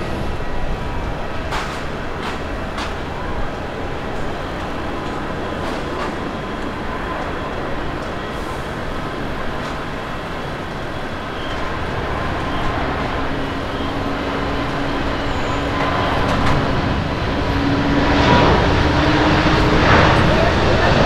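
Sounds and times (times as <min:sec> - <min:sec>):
jet engine roar: 0:00.0 - 0:21.0.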